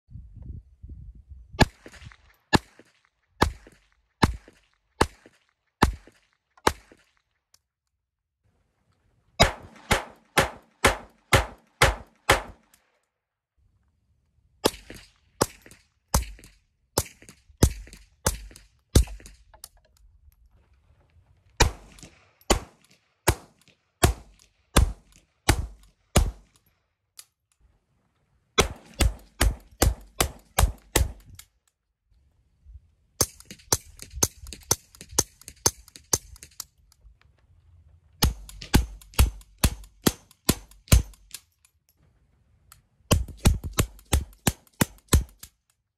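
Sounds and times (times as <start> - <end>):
pistol shots: 1.6 - 7.1, 9.4 - 12.8, 21.6 - 26.6, 28.6 - 31.3, 38.2 - 41.4
suppressed pistol shots: 9.4 - 12.8, 21.6 - 26.6, 28.6 - 31.3.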